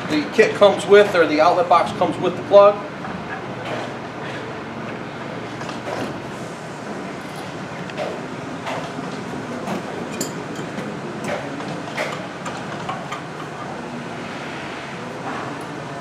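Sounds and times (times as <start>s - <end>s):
steady background noise: 0.0s - 16.0s
clinks of metal fittings and wrench: 10.1s - 10.8s.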